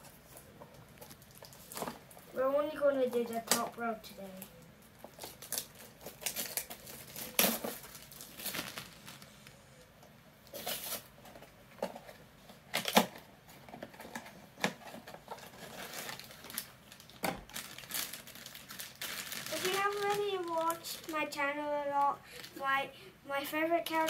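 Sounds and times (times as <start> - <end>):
foil bag crinkling: 0.1 - 2.4, 4.3 - 9.6, 13.8 - 22.6
sharp crackles: 3.0 - 9.6, 15.6 - 22.6.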